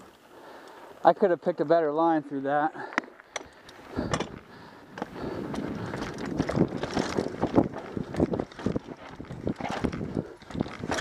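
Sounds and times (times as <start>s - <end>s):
bike tyres crunching on dirt: 0.0s - 11.0s
bike clattering over bumps: 3.0s - 11.0s
wind rushing over microphone: 3.9s - 11.0s.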